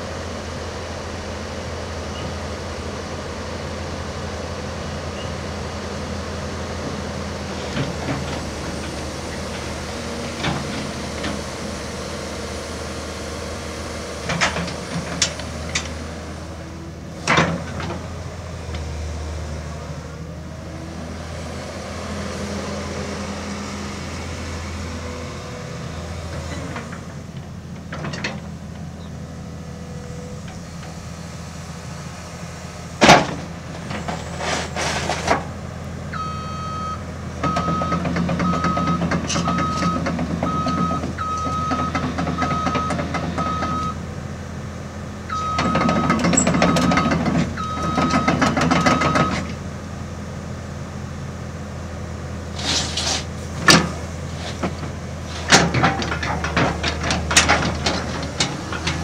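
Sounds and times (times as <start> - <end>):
excavator diesel engine running: 0.0 - 59.0
metal clanks: 52.6 - 59.0.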